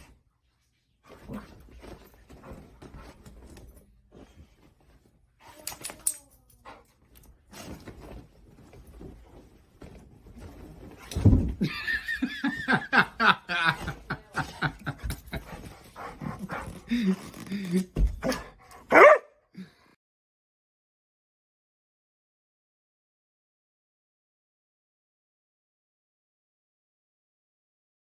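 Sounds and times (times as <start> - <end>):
bedding rustling: 0.9 - 6.0, 6.7 - 19.0
dog scrambling on a bed: 7.5 - 11.7
person laughing hard: 11.6 - 15.4.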